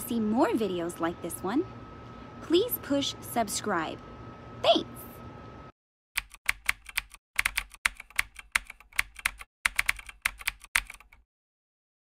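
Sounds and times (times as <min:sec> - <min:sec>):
keyboard typing clicks: 0:06.2 - 0:11.2.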